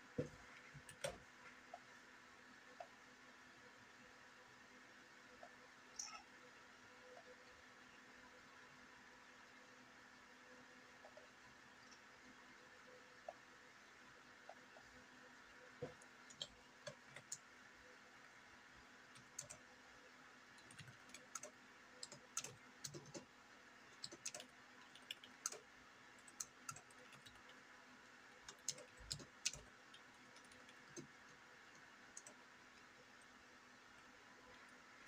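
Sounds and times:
faint steady hum: 0.0s - 35.0s
keyboard typing clicks: 0.2s - 1.2s, 15.8s - 17.5s, 19.2s - 19.6s, 20.6s - 23.3s, 23.9s - 27.6s, 28.4s - 32.4s.

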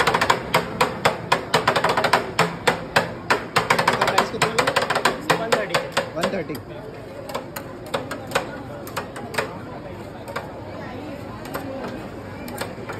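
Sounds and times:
voices: 3.9s - 12.9s.

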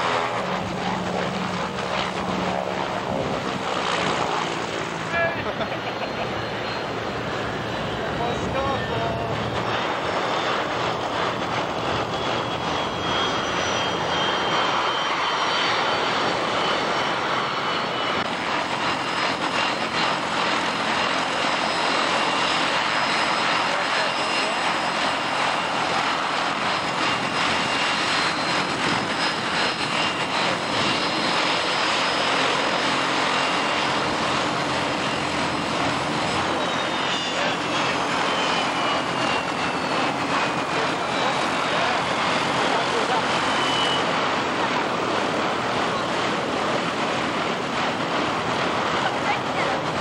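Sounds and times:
aircraft engines running: 0.0s - 50.0s.

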